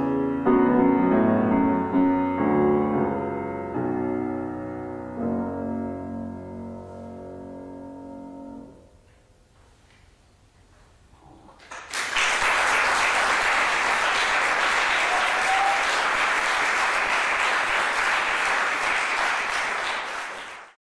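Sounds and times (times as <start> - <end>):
audience applauding: 11.6 - 20.8.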